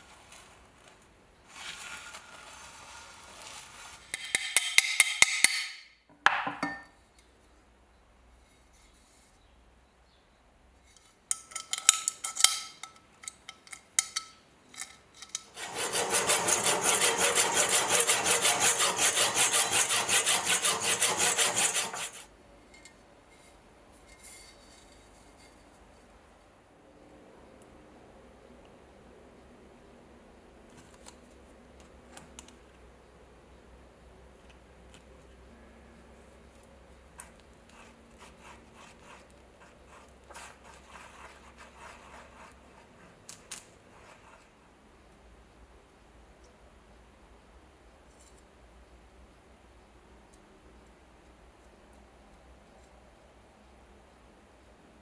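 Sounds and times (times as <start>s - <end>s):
hand rubbing on steel scabbard: 15.6s - 22.3s, 37.7s - 44.6s.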